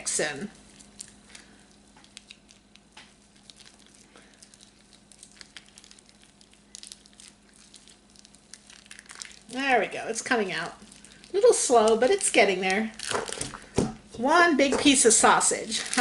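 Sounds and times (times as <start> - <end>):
steady low hum: 0.0 - 16.0
plastic wrapper crinkling: 0.3 - 13.9, 14.8 - 16.0.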